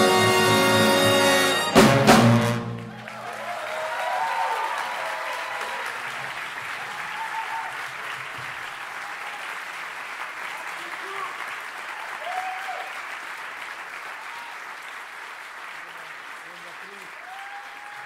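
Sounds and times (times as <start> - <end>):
big band ensemble hit: 0.0 - 3.2
audience applauding: 0.0 - 18.0.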